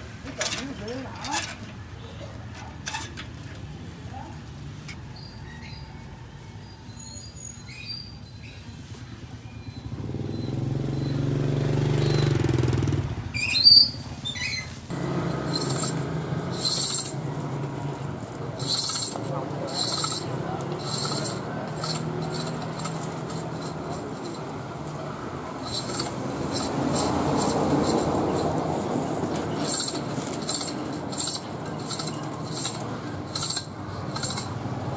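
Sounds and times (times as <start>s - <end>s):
motorbike engine passing: 9.7s - 14.1s, 14.9s - 34.9s.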